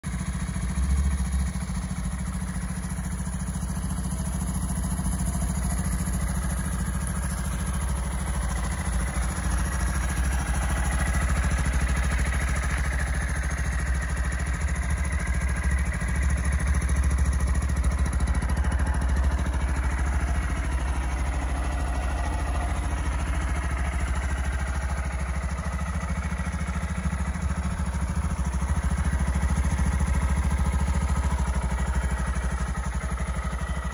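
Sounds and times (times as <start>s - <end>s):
motorcycle engine idling: 0.0s - 33.9s.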